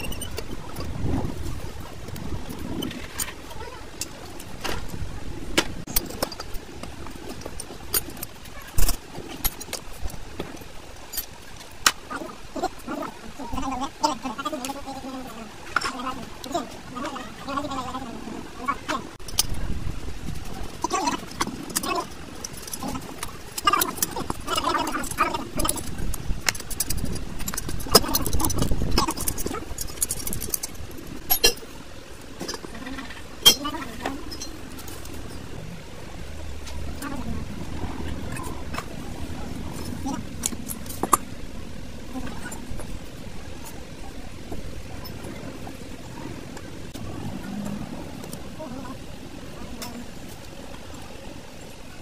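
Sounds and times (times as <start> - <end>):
metal tools clinking on metal: 21.2 - 31.7, 33.4 - 35.5.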